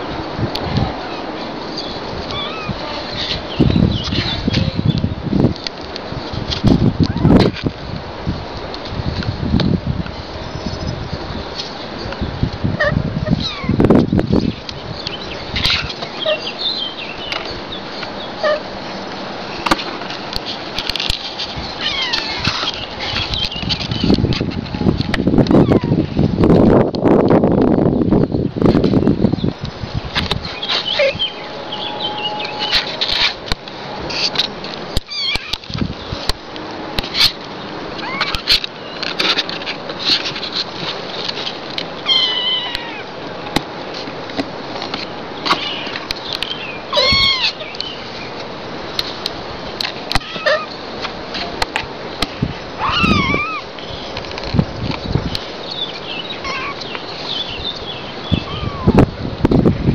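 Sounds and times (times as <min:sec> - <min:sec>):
kittens mewing: 0:02.3 - 0:02.8, 0:21.8 - 0:22.6, 0:38.0 - 0:38.5, 0:42.0 - 0:43.1, 0:46.9 - 0:47.6, 0:50.1 - 0:50.7, 0:52.8 - 0:53.7, 0:56.4 - 0:56.8, 0:58.3 - 0:59.1
kitten mewing: 0:50.2 - 0:50.7, 0:52.8 - 0:53.7, 0:56.4 - 0:56.8, 0:58.4 - 0:59.1.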